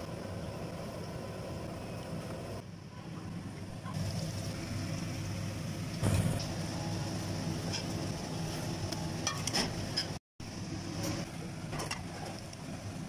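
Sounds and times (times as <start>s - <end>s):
kitchen hum: 0.0s - 13.0s.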